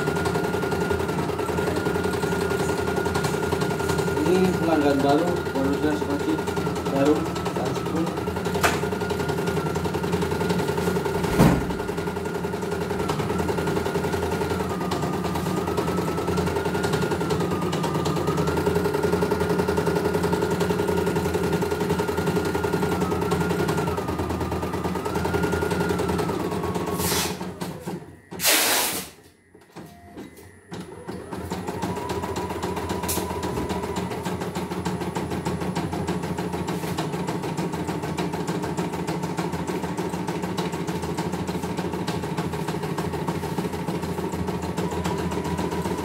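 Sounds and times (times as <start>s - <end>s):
embroidery machine stitching: 0.0s - 29.0s, 30.7s - 46.0s
machine whine: 0.0s - 46.0s
loud burst of noise: 28.4s - 29.2s.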